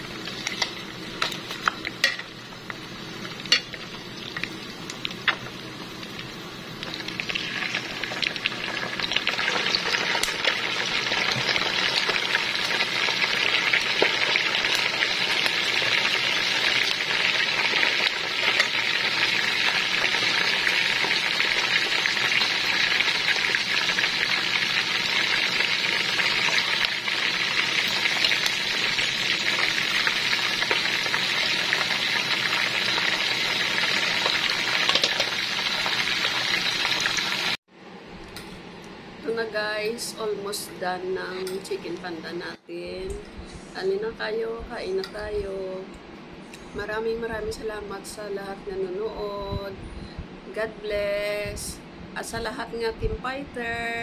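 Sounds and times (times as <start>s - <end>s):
chicken deep-frying in oil: 0.0s - 37.6s.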